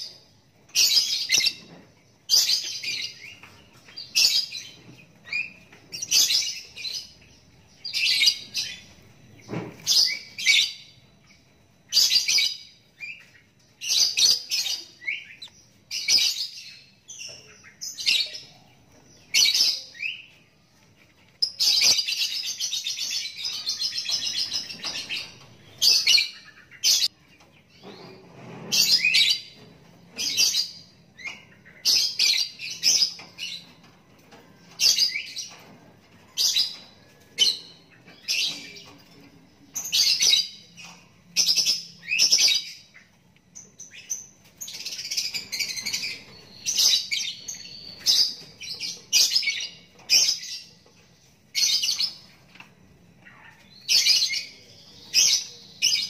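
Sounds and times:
lovebird chick chirping: 0:02.4 - 0:27.5.

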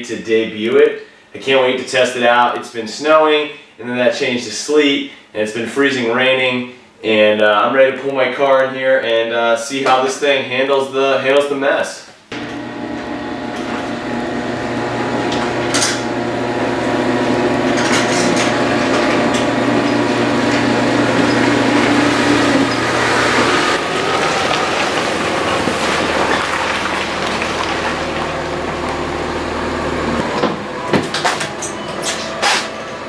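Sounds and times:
car engine running: 0:12.4 - 0:31.4.

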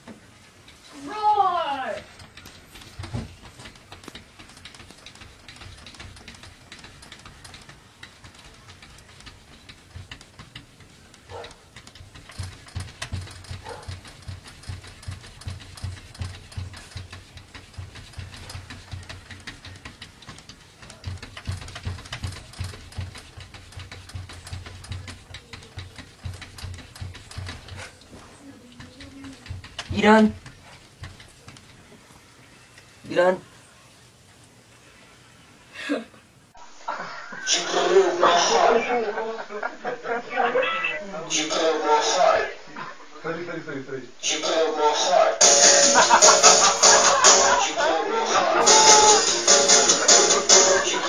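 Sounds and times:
cat paws tapping on glass door: 0:00.0 - 0:33.0.

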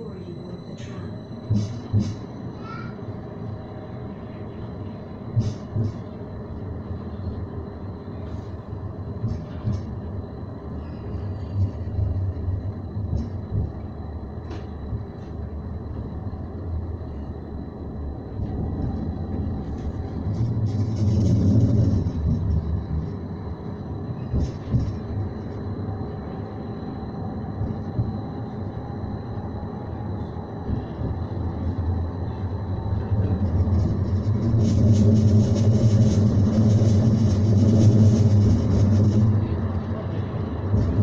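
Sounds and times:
faint high whine: 0:00.0 - 0:05.3
tram low rumble: 0:00.0 - 0:41.0.

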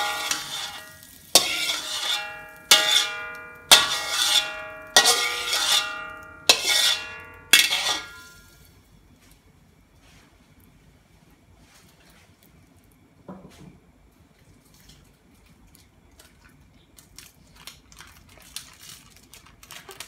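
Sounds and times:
metal spatula striking wok: 0:00.0 - 0:08.6
wok ringing: 0:00.0 - 0:08.8.

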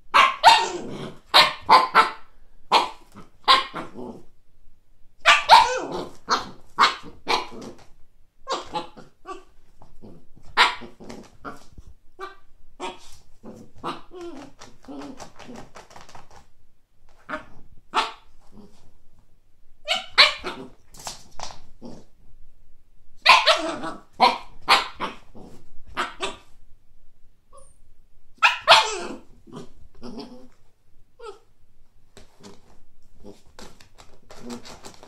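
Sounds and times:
puppy barking: 0:00.1 - 0:04.0, 0:05.2 - 0:07.8, 0:08.4 - 0:09.5, 0:10.5 - 0:11.6, 0:17.2 - 0:18.3, 0:19.8 - 0:20.8, 0:23.2 - 0:25.3, 0:25.9 - 0:26.5, 0:28.4 - 0:30.3.

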